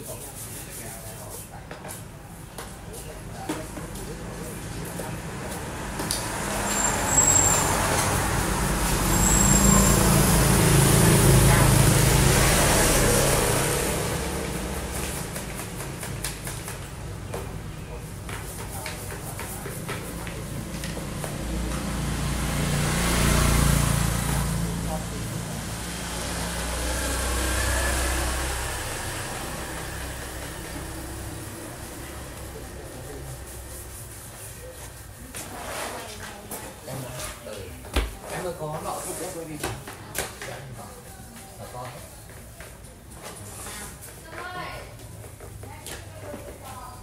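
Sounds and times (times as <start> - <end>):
motorbike engine passing: 4.2 - 18.2, 19.6 - 36.5
brief high squeaks: 6.6 - 8.1, 9.0 - 10.1.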